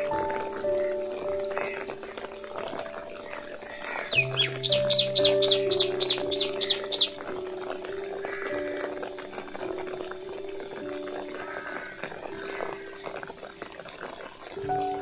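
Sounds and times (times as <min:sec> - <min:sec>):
music of sustained notes: 0:00.0 - 0:15.0
bird high call: 0:03.7 - 0:07.4.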